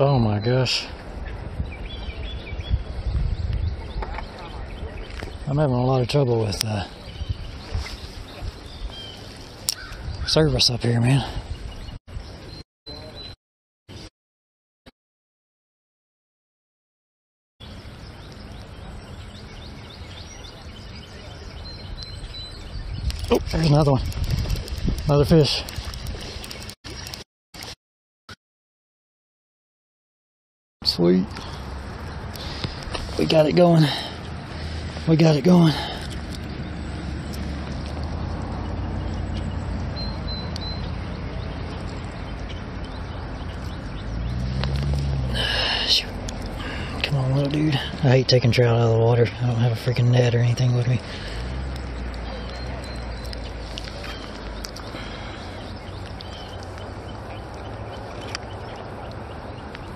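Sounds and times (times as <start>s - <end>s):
bird chirping: 0.0s - 14.1s, 17.6s - 27.2s, 30.8s - 59.9s
outdoor riverside noise: 0.0s - 14.1s, 17.6s - 27.8s, 30.8s - 59.9s
faint high chirp: 39.1s - 43.8s, 51.8s - 55.1s.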